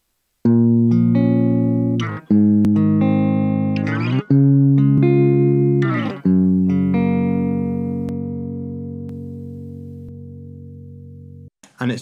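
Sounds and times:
background noise: 0.0s - 12.0s
ringing guitar chords: 0.5s - 11.5s.

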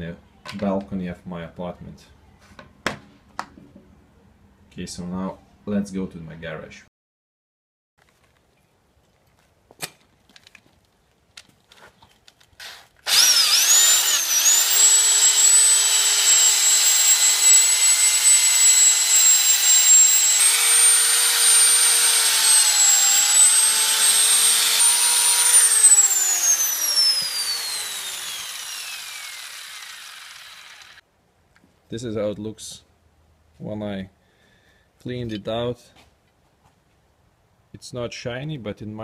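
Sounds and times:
electric drill with wire brush: 12.6s - 31.0s
drill winding down whine: 13.1s - 31.0s.

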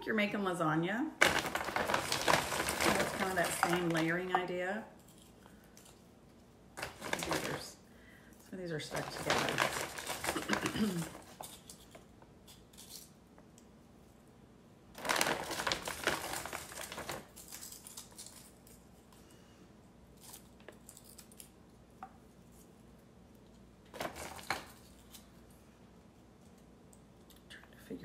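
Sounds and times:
plastic bag crinkling: 1.2s - 6.0s, 6.8s - 7.8s, 8.7s - 12.0s, 15.0s - 18.9s, 23.9s - 25.5s.

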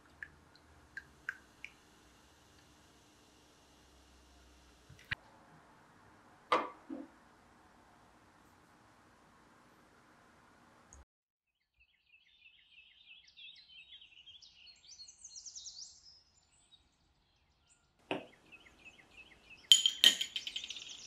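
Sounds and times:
small bird chirping: 17.5s - 21.0s
metal spoon clinking on glass cup: 19.7s - 21.0s.

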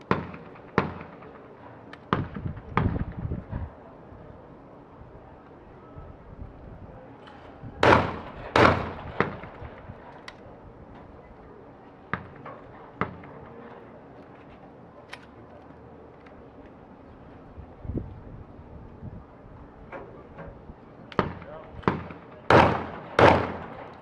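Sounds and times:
shotgun shots: 0.0s - 1.5s, 7.8s - 9.9s, 21.2s - 24.0s.

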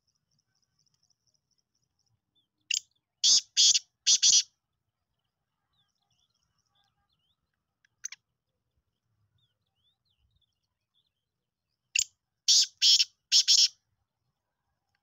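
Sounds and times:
francolin calling: 12.0s - 13.7s.

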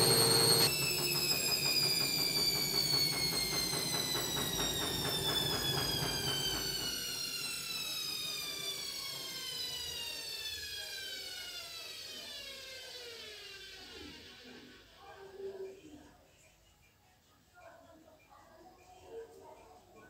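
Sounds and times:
drum coasting down whine: 0.0s - 7.0s
faint rhythmic pulsing: 0.0s - 7.1s
washing machine motor whine: 0.0s - 14.9s.

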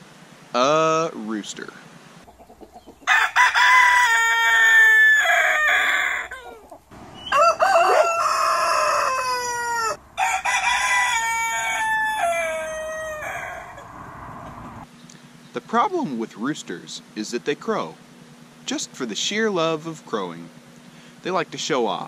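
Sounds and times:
roosters crowing: 2.2s - 14.9s.

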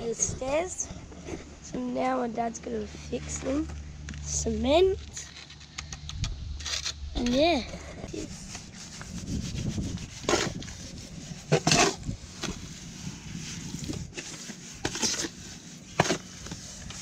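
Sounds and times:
trowel scraping mortar in tub: 6.7s - 17.0s.

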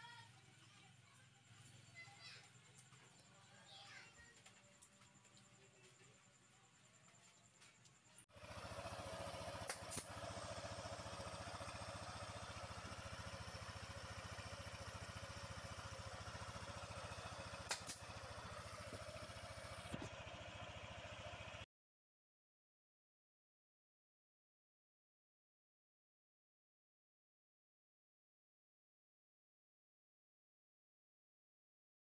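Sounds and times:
scooter engine idling: 0.0s - 6.6s, 8.2s - 21.7s
sharp clicks: 17.6s - 18.0s.

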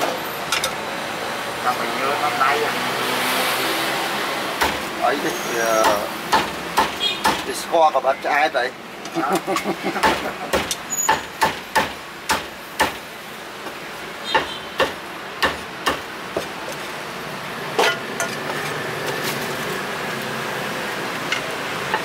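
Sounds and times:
street background noise: 0.0s - 22.0s
meat cleaver chopping on wooden block: 5.8s - 7.4s, 10.0s - 13.0s.

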